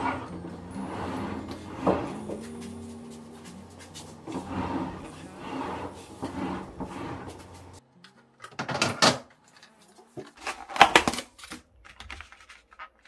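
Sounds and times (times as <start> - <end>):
refrigerator rollers scraping: 0.0 - 7.8.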